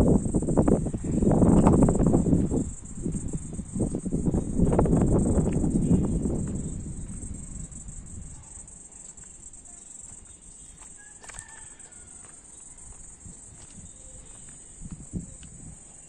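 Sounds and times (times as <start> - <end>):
low rumbling noise: 0.0 - 8.4
insects buzzing: 0.0 - 16.0
bird call: 9.7 - 12.9.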